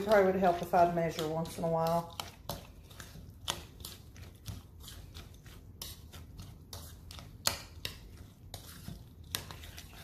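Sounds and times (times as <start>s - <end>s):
spoon scraping wet mix in bowl: 0.0s - 10.0s.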